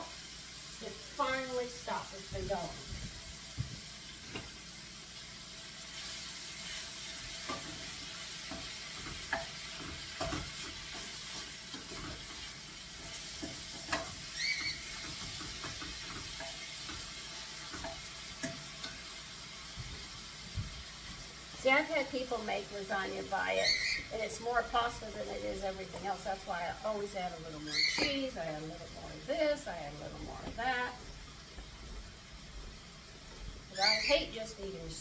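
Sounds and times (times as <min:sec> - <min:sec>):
food sizzling in a pan: 0:00.0 - 0:35.0
utensil scraping a pan: 0:06.0 - 0:19.1.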